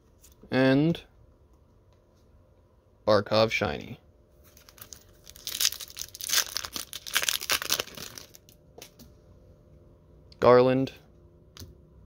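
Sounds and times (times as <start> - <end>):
wrapper tearing and crinkling: 4.5 - 8.6.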